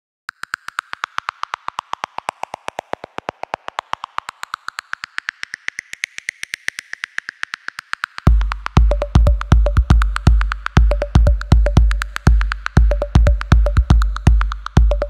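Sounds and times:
rapid electronic ticking: 0.3s - 15.0s
electronic music: 8.3s - 15.0s.

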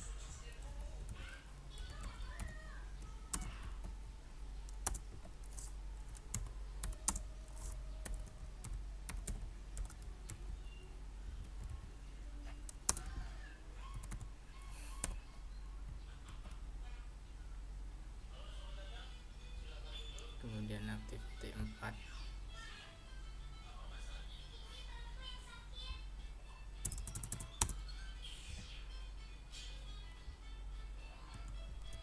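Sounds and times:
low steady hum: 0.0s - 32.0s
typing on keyboard: 1.8s - 3.9s, 4.7s - 10.6s, 12.6s - 13.2s, 13.8s - 14.3s, 14.9s - 15.2s, 26.8s - 27.8s, 31.3s - 32.0s.

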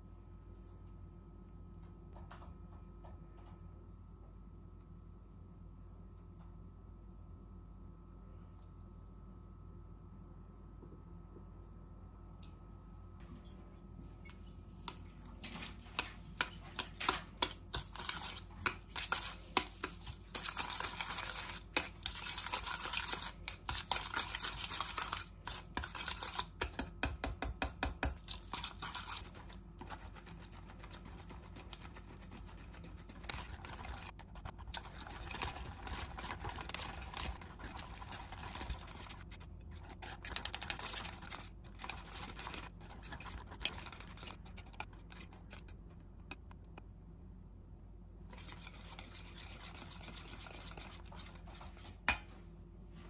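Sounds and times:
whisk clicking and scraping in metal bowl: 14.8s - 45.9s, 48.3s - 52.2s.

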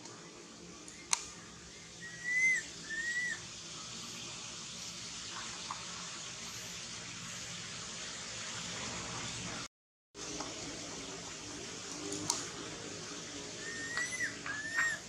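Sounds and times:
steady hiss: 0.0s - 15.0s
high whistle-like calls: 2.0s - 3.4s, 13.6s - 15.0s.

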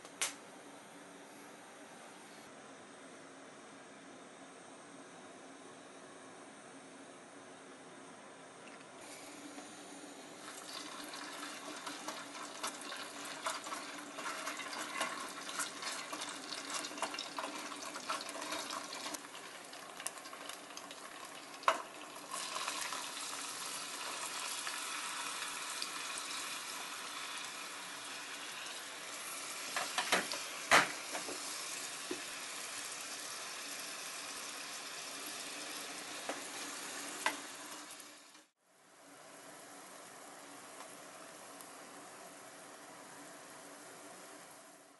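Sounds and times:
garlic sizzling in oil: 9.0s - 44.9s.

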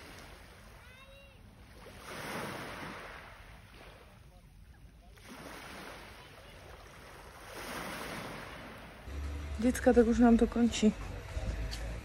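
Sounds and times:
small waves on pebble beach: 0.0s - 4.2s, 5.1s - 9.1s.

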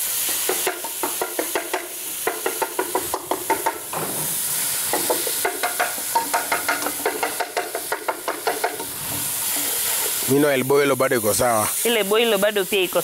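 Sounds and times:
food sizzling in a pan: 0.0s - 13.0s
wooden spoon scraping a pan: 4.9s - 10.4s.

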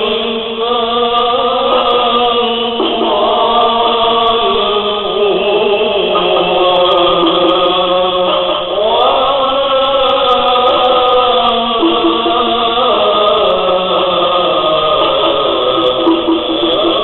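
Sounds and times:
chanted voices holding long notes: 0.0s - 17.0s
pulsing note: 11.8s - 13.3s, 15.4s - 17.0s.

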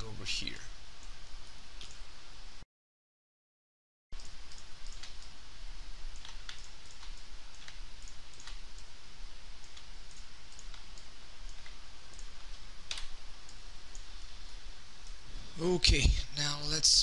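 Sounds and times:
microphone hiss and hum: 0.0s - 2.6s, 4.2s - 17.0s
computer mouse clicks: 1.8s - 2.0s, 4.2s - 5.4s, 6.1s - 8.9s, 9.6s - 14.1s.

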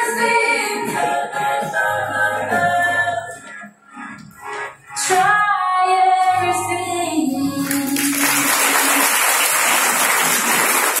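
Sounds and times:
audience applause: 7.7s - 11.0s.

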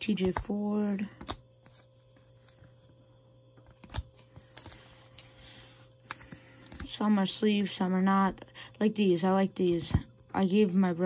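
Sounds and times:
sleeved cards rustling and clicking: 0.0s - 7.0s
low steady hum: 0.0s - 11.0s.

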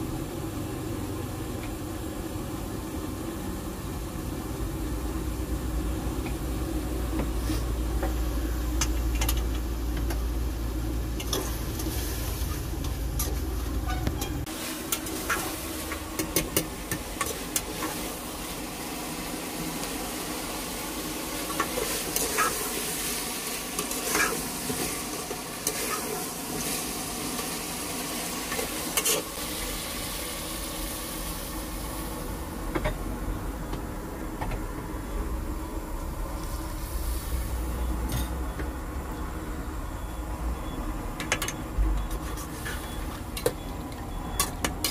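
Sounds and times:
chicken sizzling in a pan: 0.0s - 33.4s
metal spoon scraping pan: 13.2s - 15.5s, 23.8s - 24.8s.

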